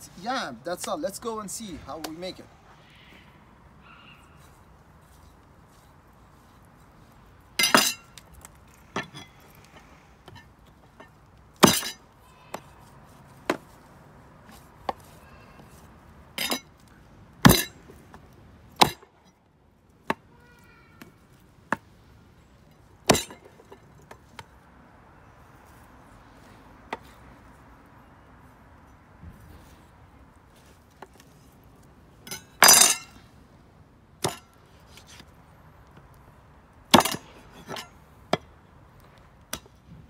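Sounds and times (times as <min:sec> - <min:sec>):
utensils and dishes clinking: 0:32.3 - 0:33.2.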